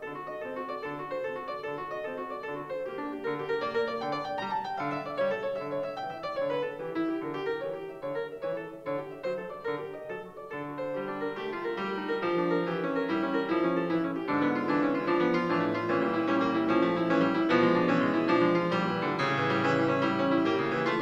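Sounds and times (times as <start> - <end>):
fast solo piano music: 0.0 - 21.0.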